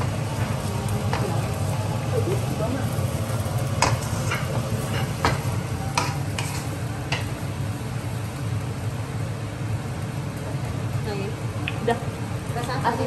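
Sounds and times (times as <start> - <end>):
rice sizzling in a pan: 0.0 - 13.0
steady low hum: 0.0 - 13.0
spatula and spoon striking pan: 3.7 - 7.4.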